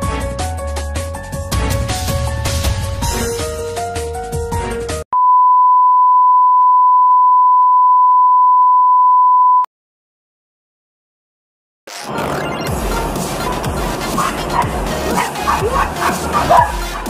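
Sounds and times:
steady test tone beep: 0:05.2 - 0:09.7.

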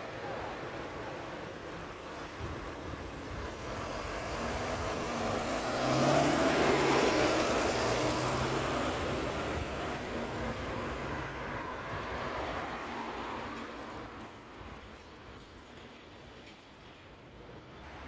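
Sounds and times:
bus engine passing: 0:00.0 - 0:14.8
road traffic: 0:00.0 - 0:18.0.

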